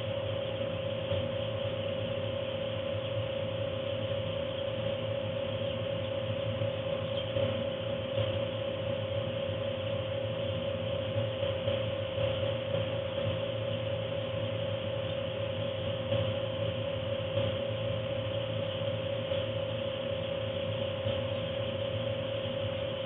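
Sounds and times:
heater mechanical hum: 0.0s - 23.0s.

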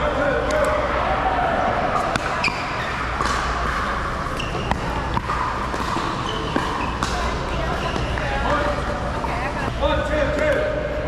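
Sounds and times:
background chatter: 0.0s - 11.0s
ball bouncing on court: 2.0s - 8.6s.

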